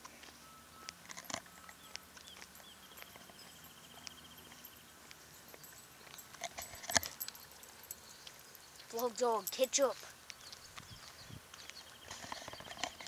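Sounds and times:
footsteps on concrete: 8.2 - 13.0.

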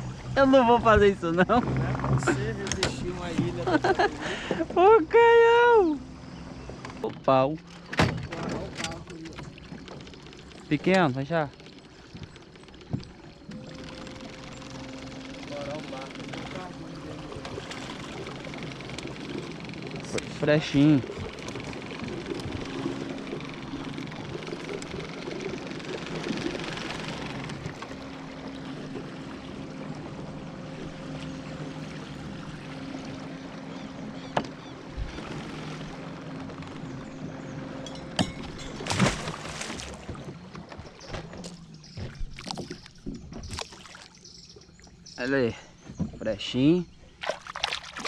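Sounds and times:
water noise: 0.0 - 48.0
electric motor humming: 9.6 - 38.2.

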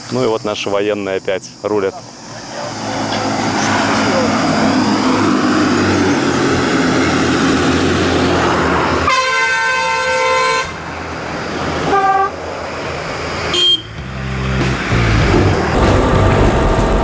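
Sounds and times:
vehicles passing: 0.0 - 17.0
truck driving past: 2.7 - 17.0
vehicle horn honking: 9.0 - 10.8, 11.9 - 12.4, 13.5 - 14.0.

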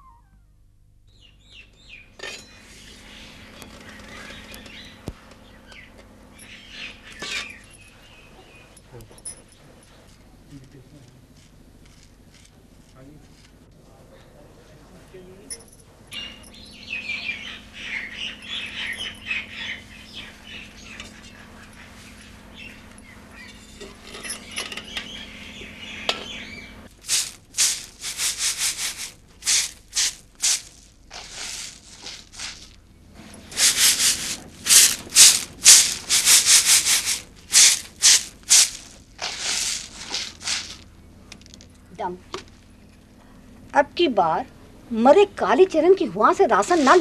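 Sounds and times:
low hum: 0.0 - 14.2, 14.8 - 47.0
faint birds chirping: 0.0 - 47.0
dry rubbing strokes: 27.0 - 32.8, 33.4 - 40.9, 46.5 - 47.0.

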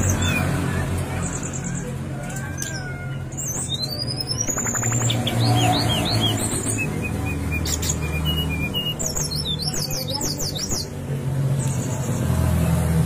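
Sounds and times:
bird singing whistles: 3.4 - 10.9.

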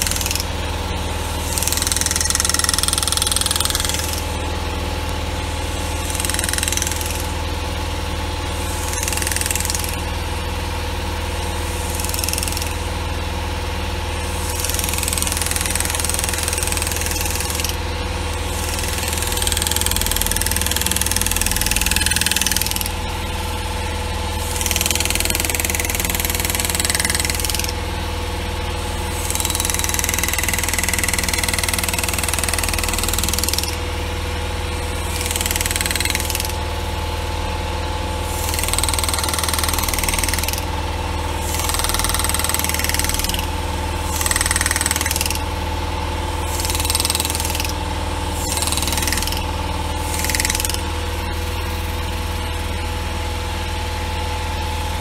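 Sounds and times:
pneumatic engraver hammering metal: 0.0 - 7.5, 8.5 - 10.2, 11.4 - 13.0, 14.2 - 27.8, 28.8 - 33.8, 34.8 - 36.8, 38.2 - 40.8, 41.4 - 45.5, 46.4 - 51.8
motor hum: 0.0 - 55.0.

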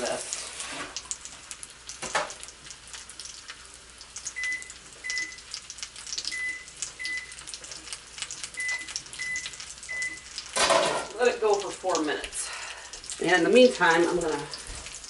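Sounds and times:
fish sizzling in a frying pan: 0.0 - 15.0
oil popping: 0.0 - 15.0
kitchen timer beeps: 4.3 - 5.5, 6.2 - 7.5, 8.5 - 10.5.

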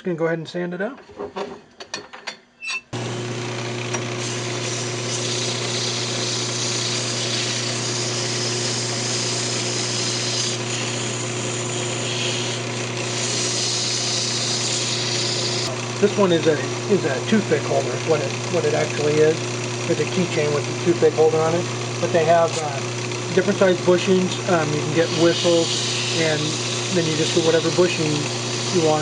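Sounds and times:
wood lathe humming: 3.0 - 29.0
sandpaper hissing on wood: 4.2 - 12.6, 13.2 - 15.7, 24.8 - 29.0.

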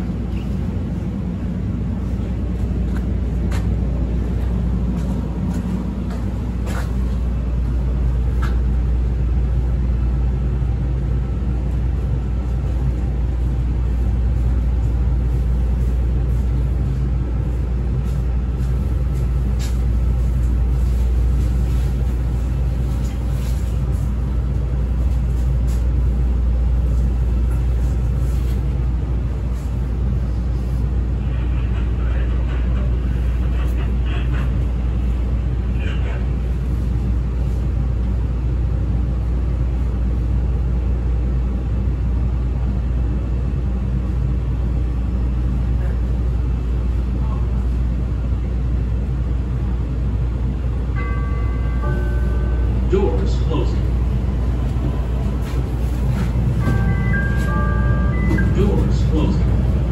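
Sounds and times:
train car rumble and hum: 0.0 - 59.9.

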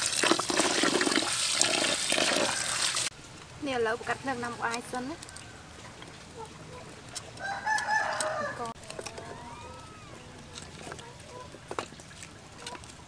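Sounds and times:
chicken calling: 7.4 - 10.4.

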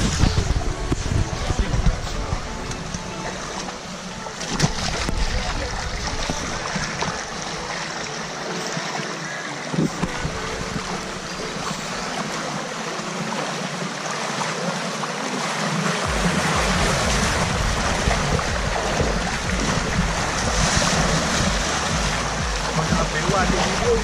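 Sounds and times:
rushing stream water: 0.0 - 24.0
low rumble: 16.1 - 24.0.

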